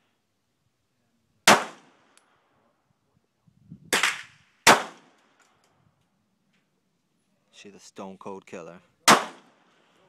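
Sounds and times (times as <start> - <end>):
pistol shots: 1.4 - 2.2, 3.9 - 5.4, 9.0 - 9.7.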